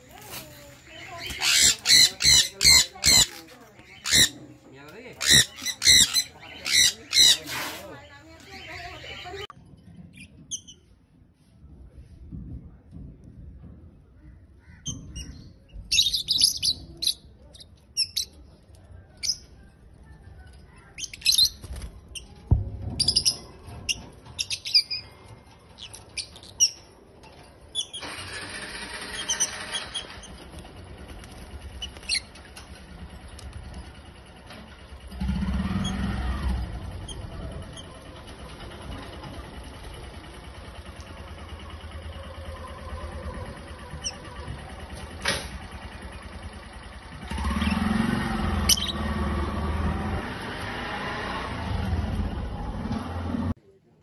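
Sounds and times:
lovebirds chirping and squawking: 0:00.0 - 0:10.9, 0:14.4 - 0:33.6, 0:34.4 - 0:38.2, 0:42.9 - 0:44.9, 0:48.4 - 0:49.2.

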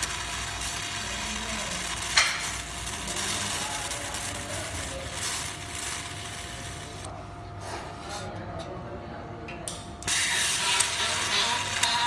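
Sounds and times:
laser welder hiss and crackle: 0:00.0 - 0:07.1, 0:10.0 - 0:12.0.

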